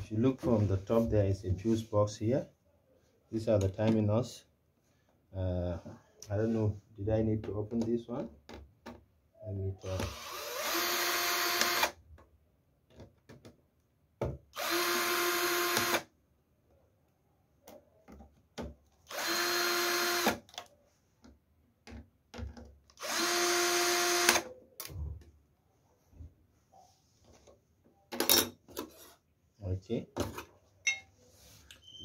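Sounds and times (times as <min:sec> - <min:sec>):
cordless drill running: 0:09.9 - 0:12.0, 0:14.6 - 0:16.1, 0:19.1 - 0:20.4, 0:23.0 - 0:24.5.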